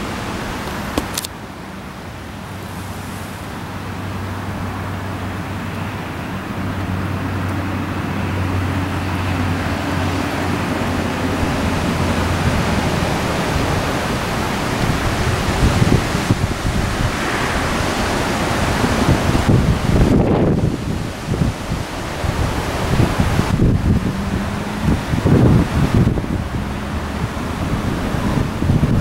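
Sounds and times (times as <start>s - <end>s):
wind buffeting microphone: 2.3s - 29.0s
low hum: 22.6s - 29.0s.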